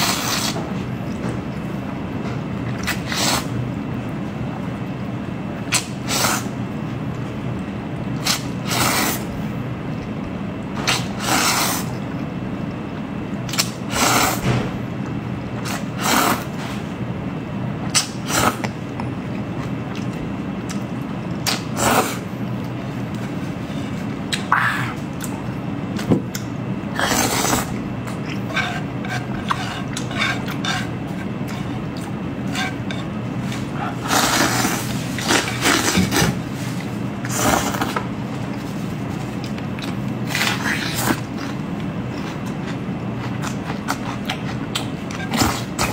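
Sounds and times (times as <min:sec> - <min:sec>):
steady low hum: 0:00.0 - 0:45.9
food chewing: 0:17.9 - 0:21.7, 0:22.4 - 0:45.9
noodles slurped: 0:26.4 - 0:32.8, 0:33.4 - 0:38.6.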